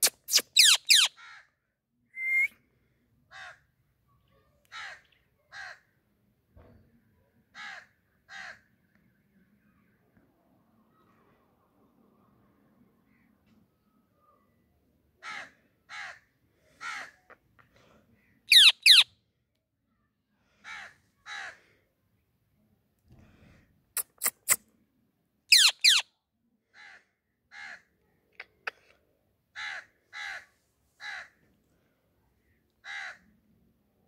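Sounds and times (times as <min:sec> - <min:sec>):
parakeet squawking: 0:00.0 - 0:01.2, 0:18.5 - 0:19.0, 0:25.5 - 0:26.0
sharp bird chirps: 0:00.0 - 0:01.2, 0:18.5 - 0:19.1, 0:25.5 - 0:26.0.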